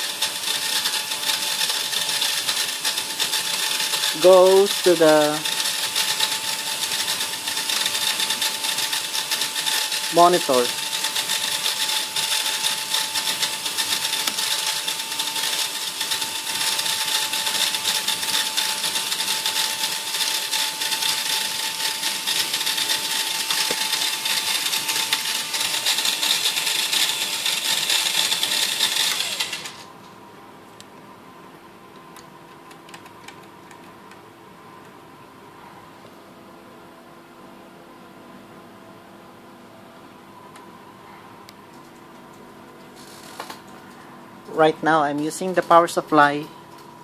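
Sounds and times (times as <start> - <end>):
vacuum cleaner motor running: 0.0 - 29.9.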